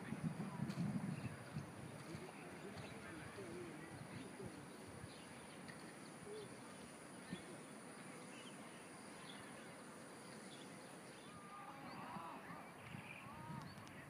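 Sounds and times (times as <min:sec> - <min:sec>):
background hiss: 0:00.0 - 0:14.0.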